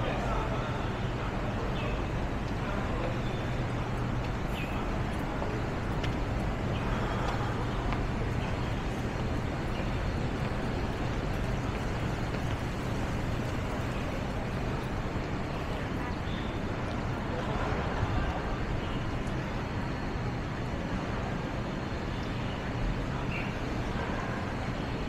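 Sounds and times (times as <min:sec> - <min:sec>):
low steady hum: 0:00.0 - 0:25.0
street traffic: 0:00.0 - 0:25.0
faint clicks: 0:03.7 - 0:15.8.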